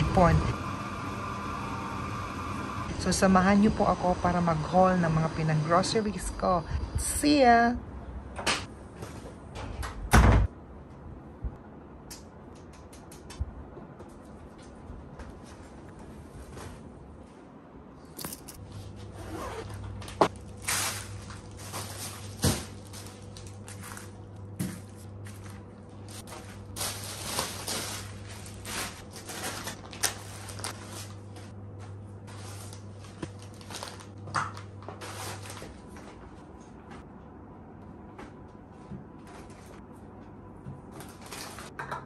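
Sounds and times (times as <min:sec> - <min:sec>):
plastic bags rustling: 0:18.8 - 0:31.5, 0:32.2 - 0:36.3, 0:40.9 - 0:41.7.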